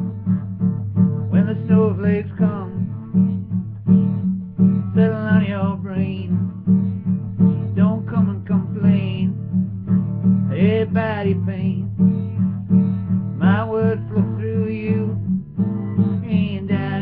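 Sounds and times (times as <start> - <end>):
acoustic guitar strumming: 0.0 - 17.0
man singing: 1.3 - 3.0, 4.8 - 6.5, 7.7 - 9.4, 10.5 - 12.0, 13.4 - 15.3, 16.2 - 17.0.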